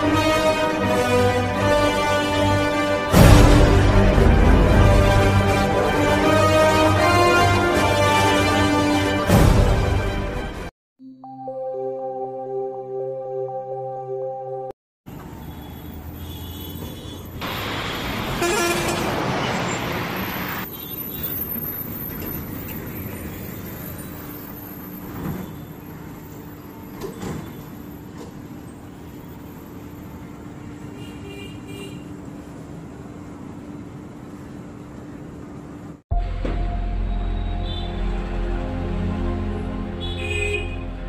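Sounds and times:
bus diesel engines rumbling: 0:15.1 - 0:41.0.

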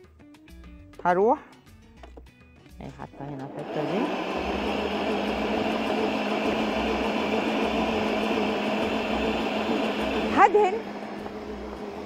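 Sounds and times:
stand mixer kneading dough: 0:03.6 - 0:12.0.

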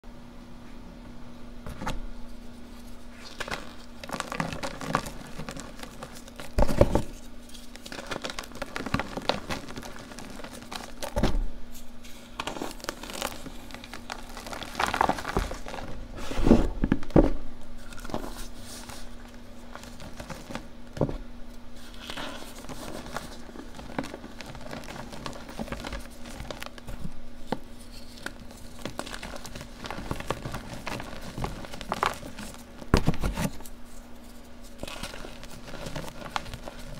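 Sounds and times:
hands crushing chalk blocks: 0:03.2 - 0:11.2, 0:12.4 - 0:15.9.

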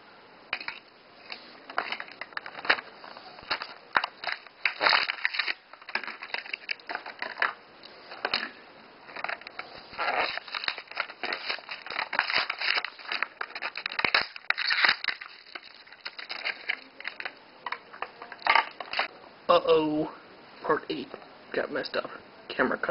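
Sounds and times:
plastic packaging ripped open: 0:00.6 - 0:07.6, 0:09.8 - 0:17.4.

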